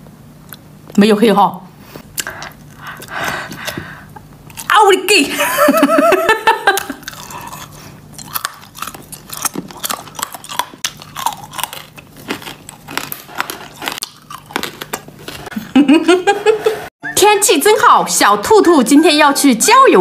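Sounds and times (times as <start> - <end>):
hard candy crunching in mouth: 6.8 - 15.5.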